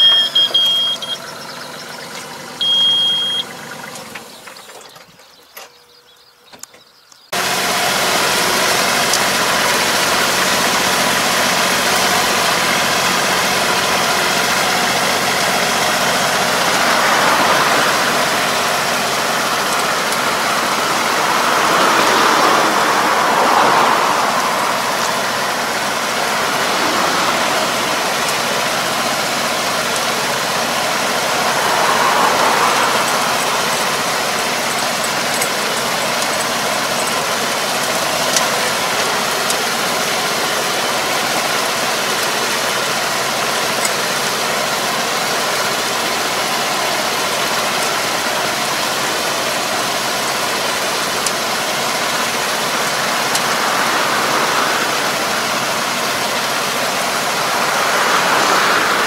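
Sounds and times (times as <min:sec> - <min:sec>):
tractor engine running: 0:00.0 - 0:59.0
churning water and mud: 0:47.3 - 0:59.0.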